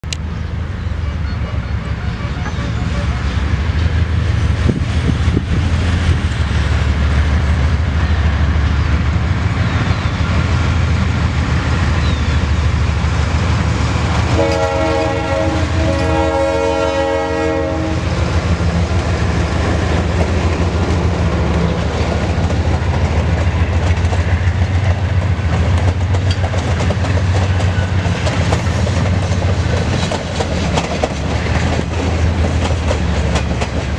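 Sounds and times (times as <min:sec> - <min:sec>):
locomotive engine rumbling: 0:00.0 - 0:33.9
multi-tone train horn: 0:00.9 - 0:04.0, 0:14.2 - 0:18.3
train wheels clicking on rail joints: 0:18.0 - 0:33.9.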